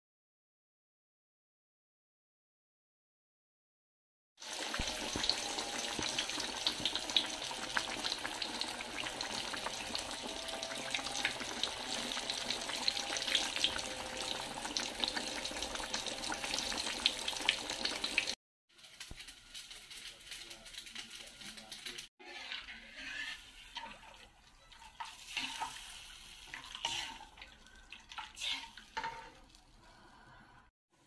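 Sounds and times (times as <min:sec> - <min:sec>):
meat sizzling in hot oil: 0:04.4 - 0:21.0, 0:25.0 - 0:27.6.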